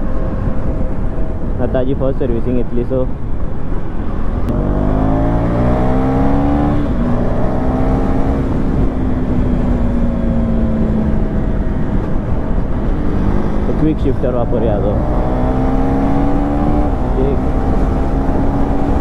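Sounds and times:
wind rush: 0:00.0 - 0:19.0
motorcycle engine revving: 0:04.5 - 0:19.0.

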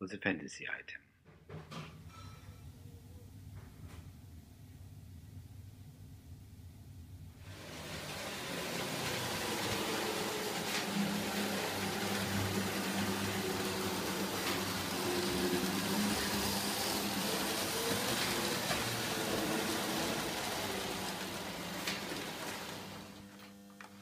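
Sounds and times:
wheels rattling on rails: 0:07.4 - 0:23.2
electric motor hum: 0:07.4 - 0:24.0.

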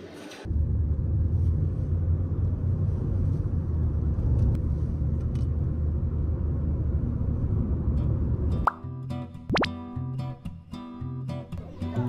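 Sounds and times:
car road and engine rumble: 0:00.5 - 0:08.6.

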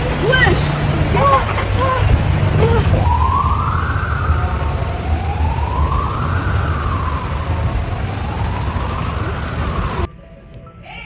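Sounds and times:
steady low rumble: 0:00.0 - 0:10.5
siren wailing: 0:02.5 - 0:10.1.

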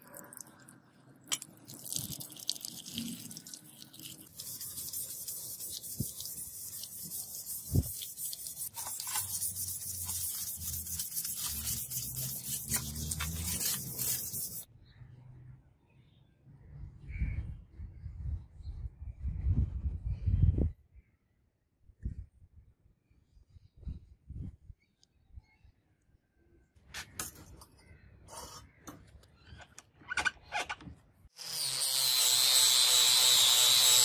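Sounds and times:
water pouring on metal: 0:01.3 - 0:14.6
brush scrubbing metal: 0:02.0 - 0:14.7.

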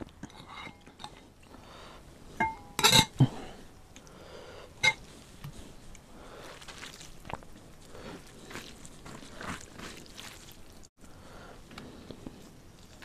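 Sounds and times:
ladle clattering in bowl: 0:02.4 - 0:03.2
metal ladle clinking on glass bowl: 0:02.4 - 0:03.2.

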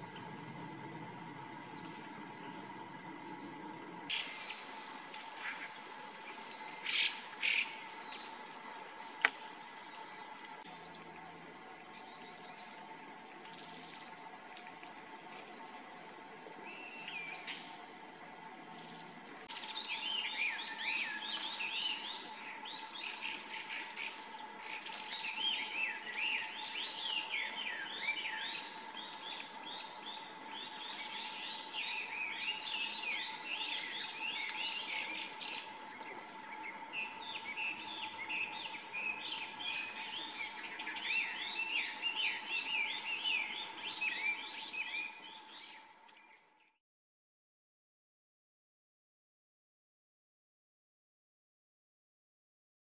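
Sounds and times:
faint hum: 0:00.0 - 0:46.8
songbirds chirping: 0:00.0 - 0:46.8.

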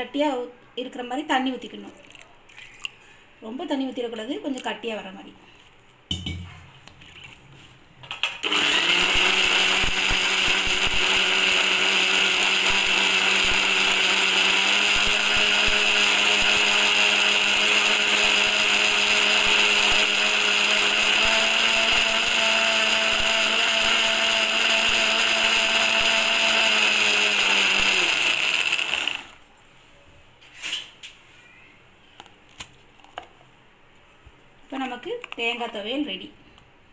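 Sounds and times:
mixer grinder running: 0:08.4 - 0:29.4.

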